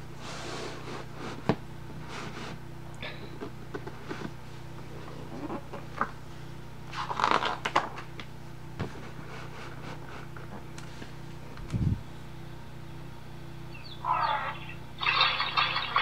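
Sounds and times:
steady low hum: 0:00.0 - 0:16.0
book pages rustling: 0:06.9 - 0:11.2.

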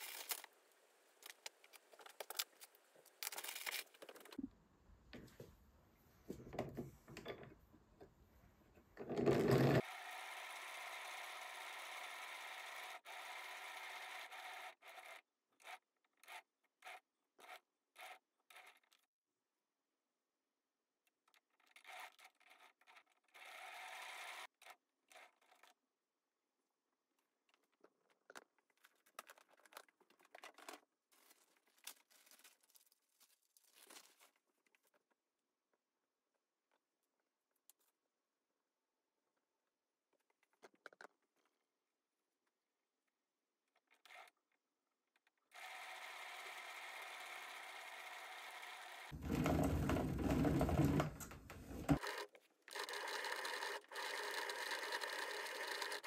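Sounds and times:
faint crinkling and rustling: 0:27.3 - 0:35.2.

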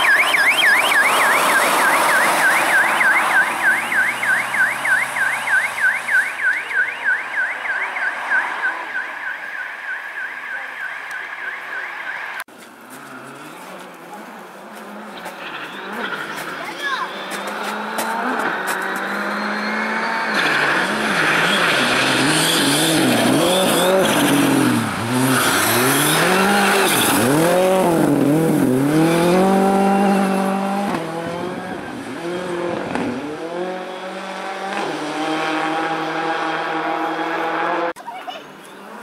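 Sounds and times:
tyres scrabbling on ice and snow: 0:12.5 - 0:19.2
rally car engine revving: 0:12.9 - 0:38.0.

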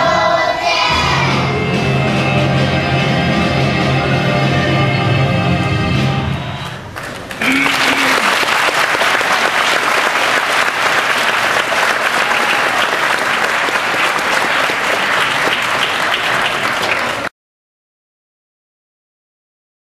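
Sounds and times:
audience applauding: 0:06.9 - 0:17.3.

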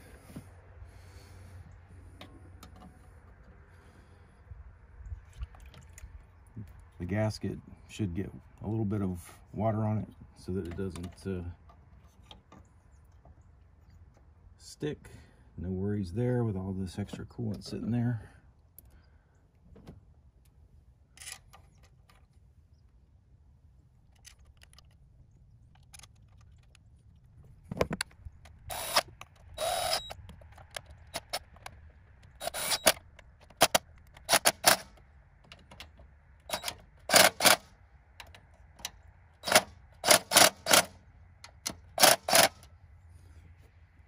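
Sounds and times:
cordless driver bursts: 0:28.7 - 0:30.2, 0:32.2 - 0:35.0, 0:36.5 - 0:37.6, 0:39.4 - 0:40.9, 0:41.6 - 0:42.6.

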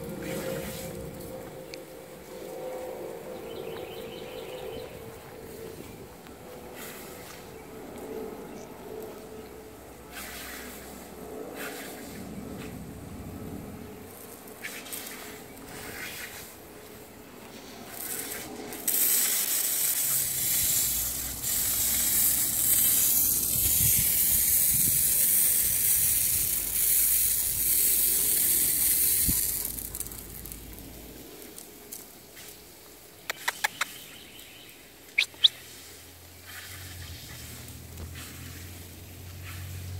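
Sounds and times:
lawn sprinkler water hissing: 0:04.2 - 0:08.0, 0:09.1 - 0:39.9
sharp clicks: 0:33.3 - 0:34.0.

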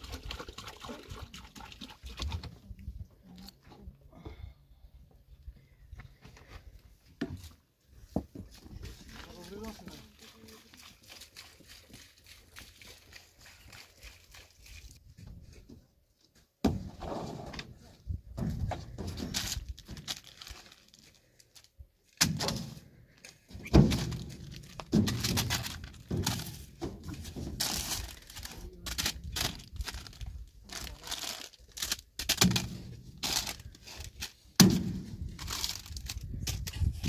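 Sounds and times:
thuds and knocks: 0:16.6 - 0:17.6
crackling and tearing: 0:19.3 - 0:21.7, 0:27.3 - 0:37.0.

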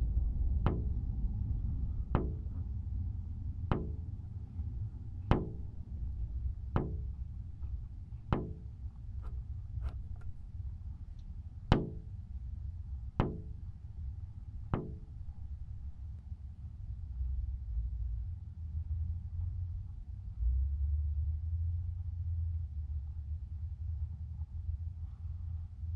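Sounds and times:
steady low rumble: 0:00.0 - 0:25.9
percussive knock with pitched ring: 0:00.7 - 0:01.0, 0:02.2 - 0:02.6, 0:03.7 - 0:04.3, 0:05.2 - 0:05.9, 0:06.6 - 0:10.5, 0:11.7 - 0:12.2, 0:13.1 - 0:13.8, 0:14.6 - 0:15.9.

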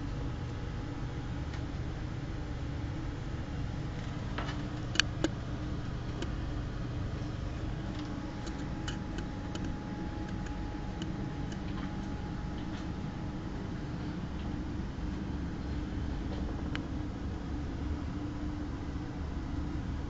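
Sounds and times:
low room hum: 0:00.0 - 0:20.0
sharp clicks: 0:04.8 - 0:06.4, 0:08.0 - 0:12.2.

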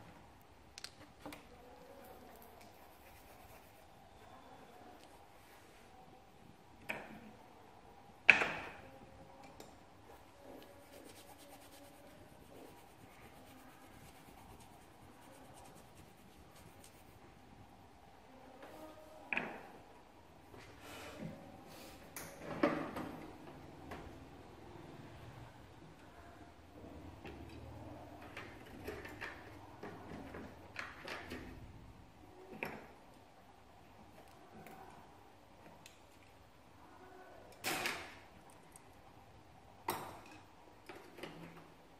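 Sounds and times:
pencil scratching on paper: 0:02.6 - 0:03.9, 0:10.6 - 0:17.2.

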